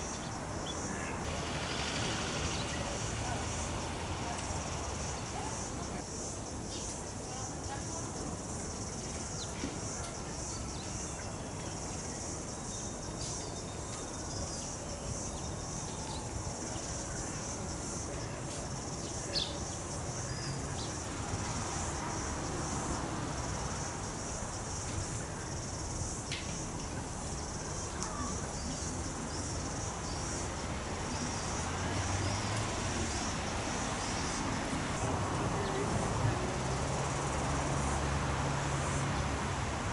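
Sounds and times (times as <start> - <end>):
high-pitched insect chorus: 0.0 - 39.7.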